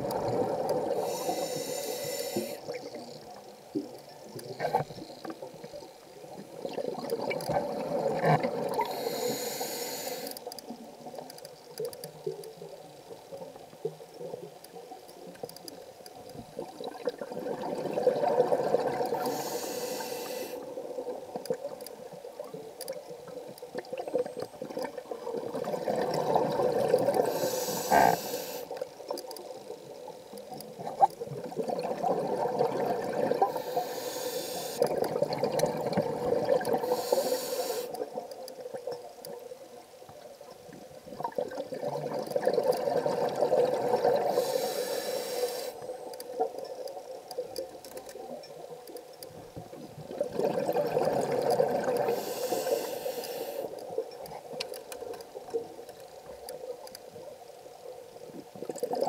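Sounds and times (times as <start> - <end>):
exhaled air bubbling: 0.0 - 9.5, 16.4 - 19.6, 23.7 - 28.3, 30.8 - 33.9, 34.7 - 37.3, 41.0 - 44.8, 49.6 - 52.9
diver breathing through regulator: 0.9 - 2.7, 8.8 - 10.4, 19.2 - 20.7, 27.2 - 28.7, 33.4 - 34.9, 36.8 - 38.0, 44.2 - 45.8, 52.0 - 53.8.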